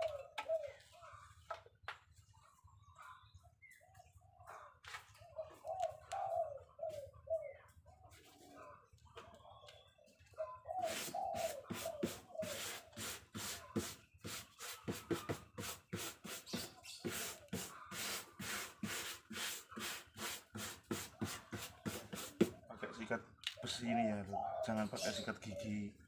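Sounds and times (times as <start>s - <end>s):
wire brush strokes on paper: 10.8s - 22.6s.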